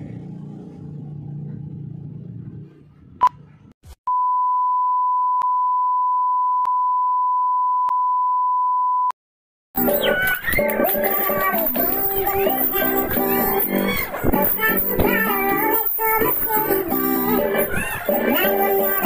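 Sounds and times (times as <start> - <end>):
music: 9.8 - 19.0.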